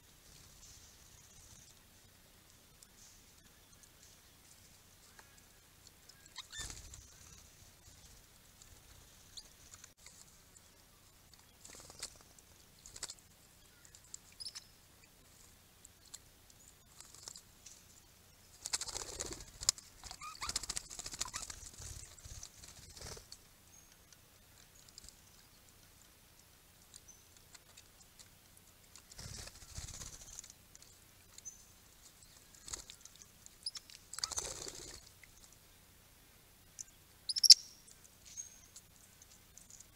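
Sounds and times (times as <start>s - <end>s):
high bird chirps: 6.1s - 7.4s, 13.7s - 14.8s, 36.8s - 38.7s
parrots chirping: 6.2s - 6.8s, 20.1s - 20.5s, 37.3s - 37.8s
wings flapping: 6.4s - 10.2s, 11.6s - 13.2s, 18.6s - 23.4s, 28.9s - 30.9s, 34.1s - 35.1s.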